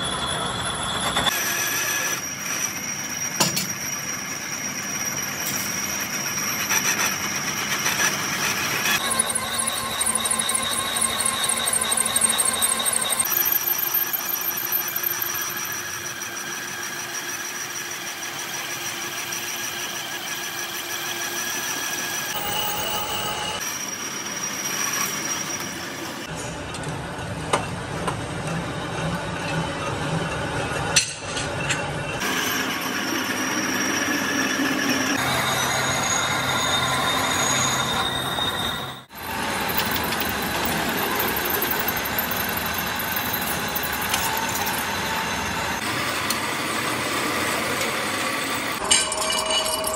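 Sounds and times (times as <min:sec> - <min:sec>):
high metallic whine: 0:00.0 - 0:26.3, 0:32.0 - 0:49.9
lathe cutting metal squeal: 0:00.0 - 0:26.3, 0:32.0 - 0:49.9
metalworking machinery running: 0:00.0 - 0:49.9.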